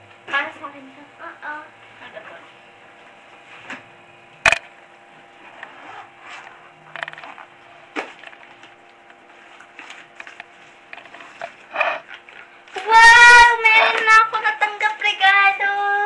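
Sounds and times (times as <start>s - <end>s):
sharp loud click: 4.4s - 4.7s.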